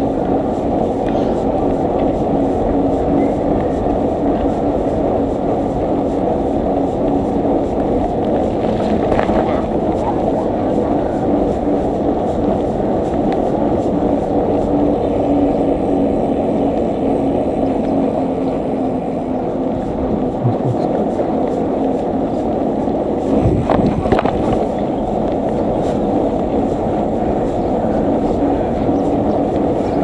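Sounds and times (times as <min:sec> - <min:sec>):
bicycle tyres rolling on road: 0:00.0 - 0:30.0
wind buffeting microphone: 0:00.0 - 0:30.0.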